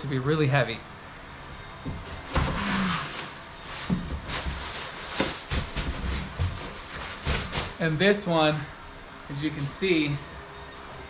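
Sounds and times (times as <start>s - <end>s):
footsteps: 1.9s - 7.8s.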